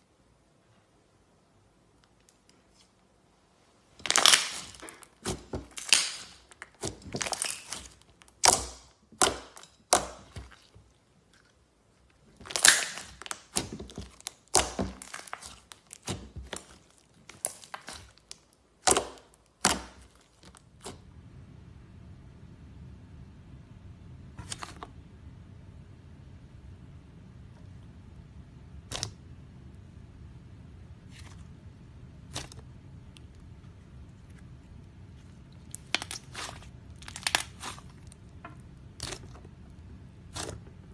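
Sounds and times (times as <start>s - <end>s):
slime crackling and popping: 4.0s - 21.0s, 32.2s - 40.9s.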